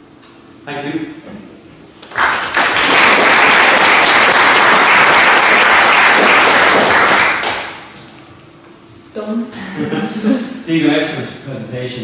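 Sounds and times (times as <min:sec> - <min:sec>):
audience applauding: 0:02.0 - 0:07.9.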